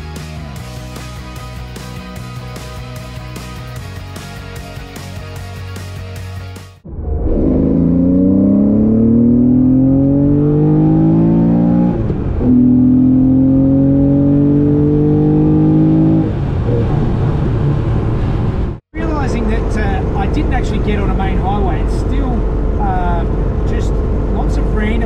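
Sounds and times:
car engine accelerating: 6.8 - 25.0.

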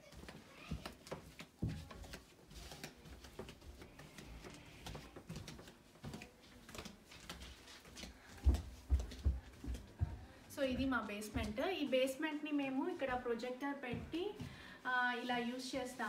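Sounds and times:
footsteps going down stairs: 0.0 - 12.2, 12.9 - 14.8.

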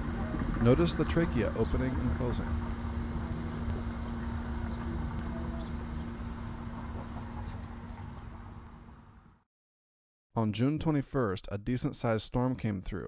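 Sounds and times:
low mechanical rumble: 0.0 - 9.4.

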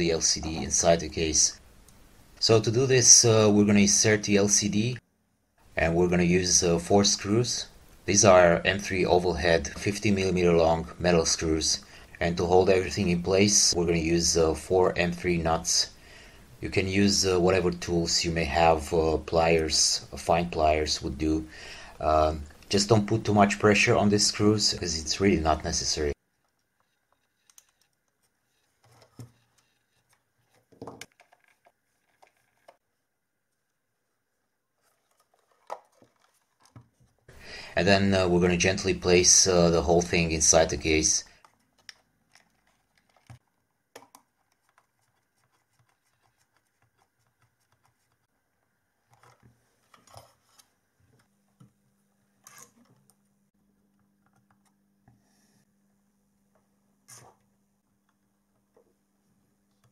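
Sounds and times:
small parts clicking and knocking: 26.3 - 32.8, 41.3 - 45.2.

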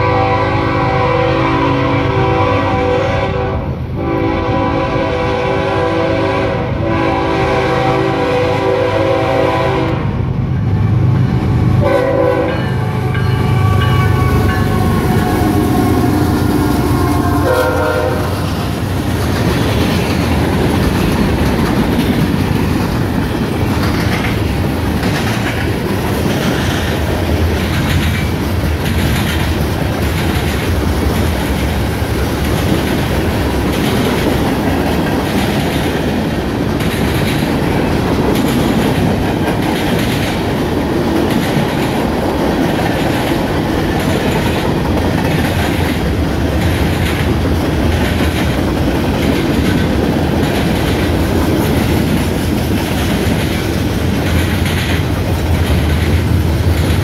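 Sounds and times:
train air horn blasts: 0.0 - 10.2, 11.8 - 18.6
train wheels clattering over rail joints: 18.4 - 57.0.

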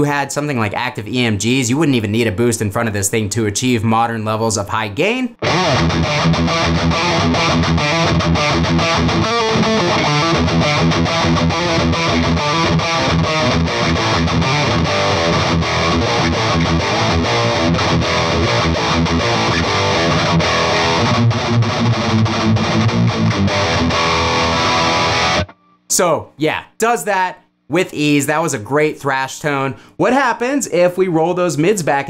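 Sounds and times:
distorted electric guitar riffing: 5.4 - 25.7.

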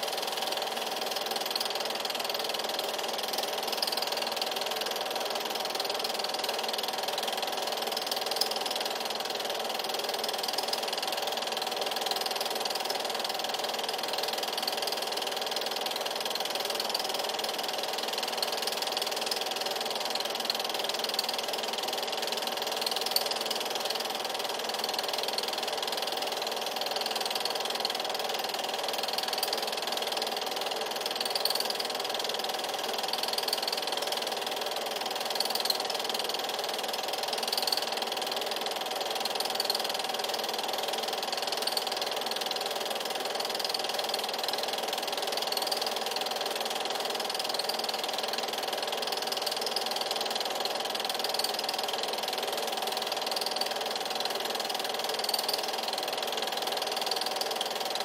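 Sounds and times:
film projector whirring and clattering: 0.0 - 58.0.

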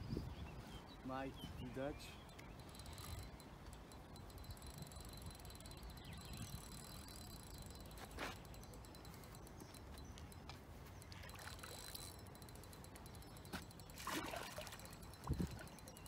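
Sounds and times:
water splashing and sloshing: 14.0 - 15.6.

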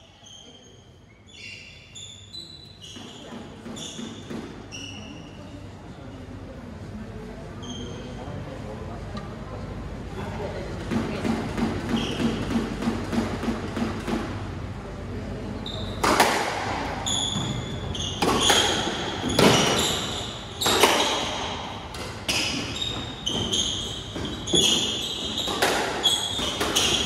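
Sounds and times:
shoes squeaking on wooden floor: 1.3 - 5.2, 17.0 - 21.6, 22.3 - 27.0.

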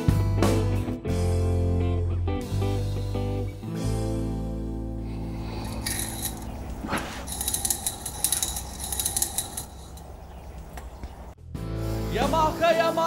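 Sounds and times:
loose bearing fragments rattling: 5.1 - 11.3
metal parts clinking and jingling: 5.3 - 11.3.

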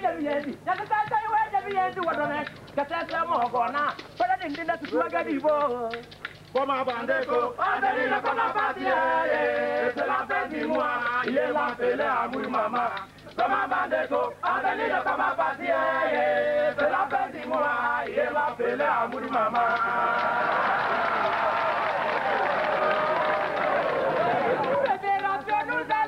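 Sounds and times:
men chanting: 6.6 - 21.7, 22.8 - 26.0.

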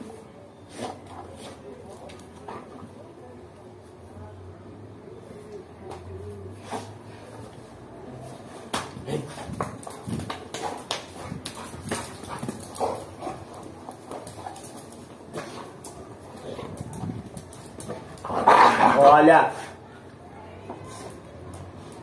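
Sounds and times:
dogs scuffling: 8.2 - 19.7.

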